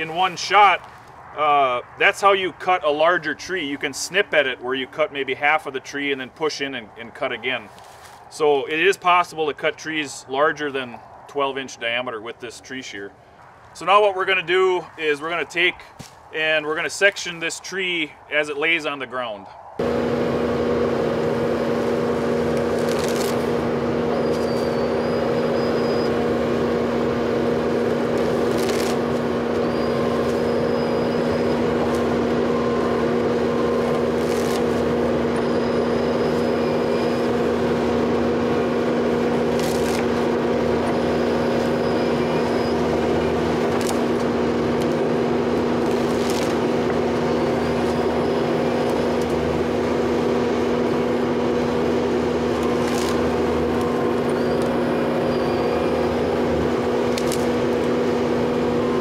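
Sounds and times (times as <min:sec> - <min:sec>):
diesel engine running: 0:19.8 - 0:59.0.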